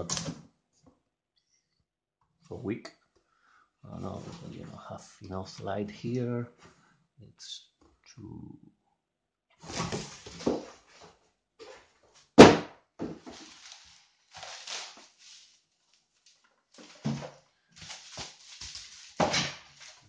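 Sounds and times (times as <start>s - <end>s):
plastic rustles and knocks: 9.6s - 15.3s, 16.4s - 20.0s.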